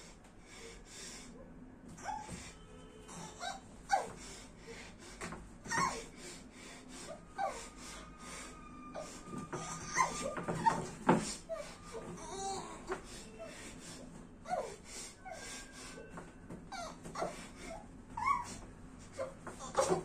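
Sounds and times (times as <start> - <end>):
woman's muffled whimpers: 7.0 - 20.0
chair knocking: 9.4 - 11.4.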